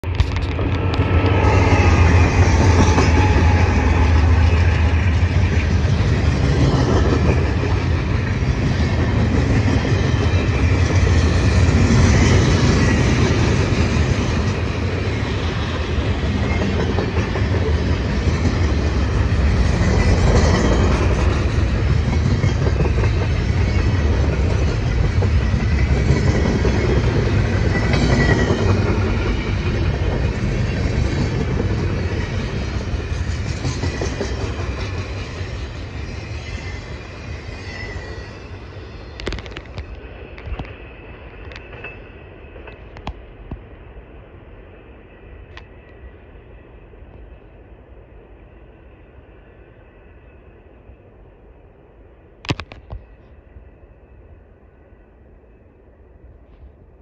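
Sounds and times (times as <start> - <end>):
train wheels clattering on rails: 0.0 - 43.8
diesel locomotives rumbling: 0.0 - 57.0
high-pitched wheel squeals: 1.0 - 4.9, 35.6 - 39.6.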